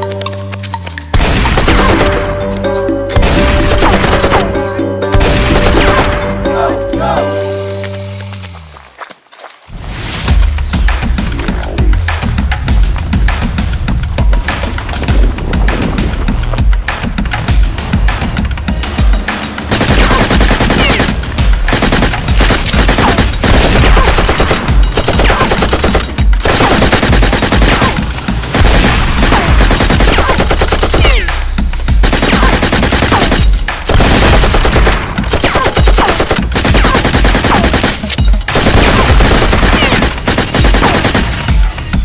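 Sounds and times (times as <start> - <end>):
automatic gunfire sound effects: 19.7 - 31.3, 32.0 - 41.5.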